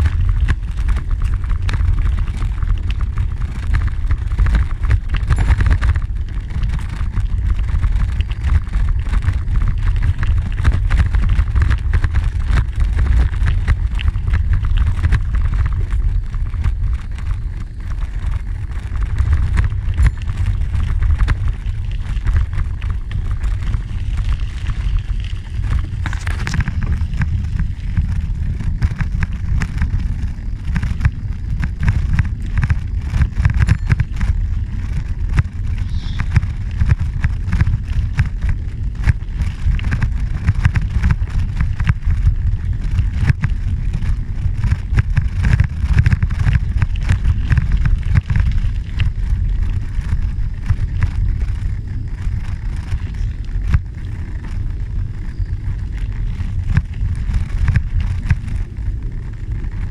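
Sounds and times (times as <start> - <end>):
wind buffeting microphone: 0.0 - 59.9
tyres crunching on gravel: 11.9 - 56.1.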